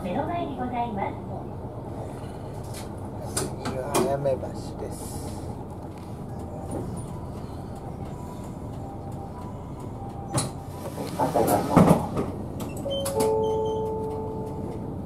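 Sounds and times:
bus engine running: 0.0 - 15.0
bus door opening with hiss: 10.2 - 14.7.

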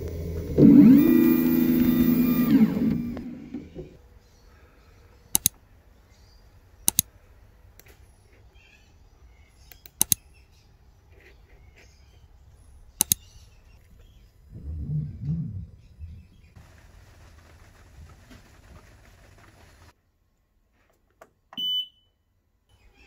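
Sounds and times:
sharp double clicks: 5.3 - 5.6, 6.8 - 7.1, 9.7 - 10.2, 13.0 - 13.3.

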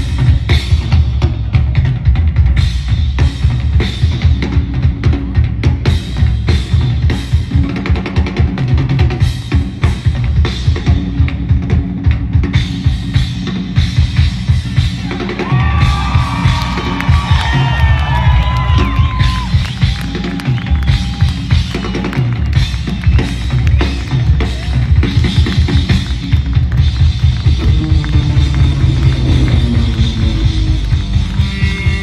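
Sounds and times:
drum solo with crashing cymbals: 0.0 - 32.0
crowd cheering: 14.9 - 32.0.

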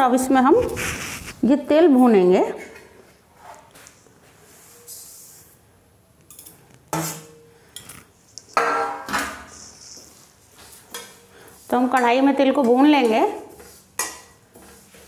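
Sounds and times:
seeds sliding from a plate: 0.6 - 1.5.

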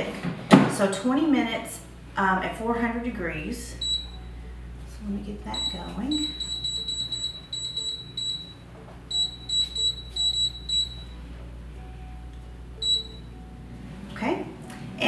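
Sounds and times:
short high beeps: 5.6 - 11.1, 12.8 - 13.2.

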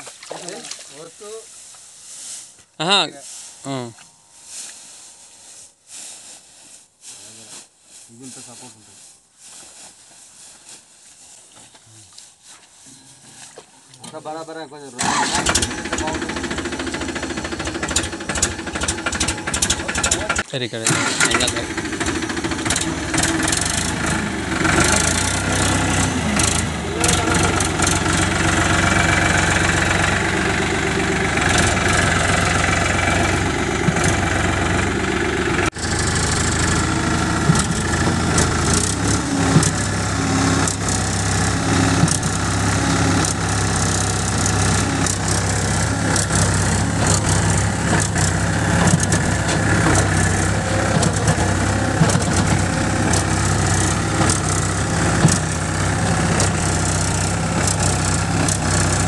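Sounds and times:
tractor diesel engine running: 14.2 - 59.0.

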